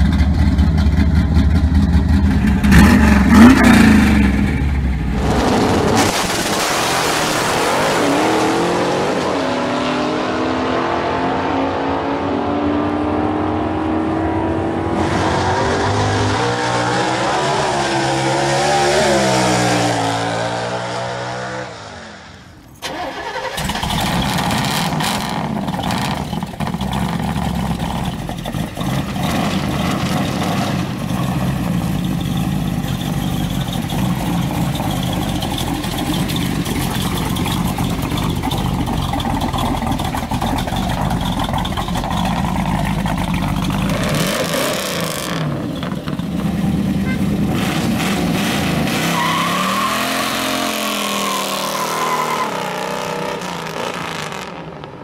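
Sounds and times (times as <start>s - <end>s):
car engine running rough close up: 0.0s - 6.6s, 23.6s - 48.4s
racing car engines at full throttle: 0.0s - 55.0s.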